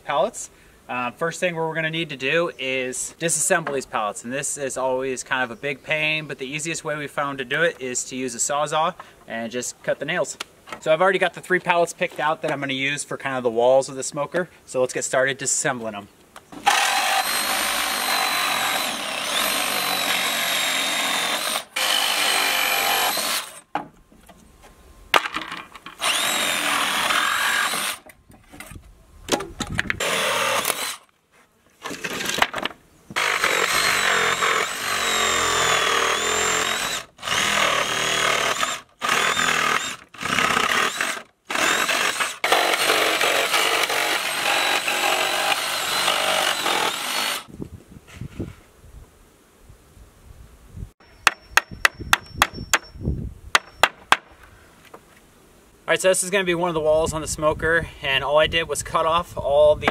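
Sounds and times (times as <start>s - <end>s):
reciprocating saw cutting nails: 16.6s - 23.6s, 26.0s - 28.0s, 30.0s - 31.1s, 33.2s - 47.5s.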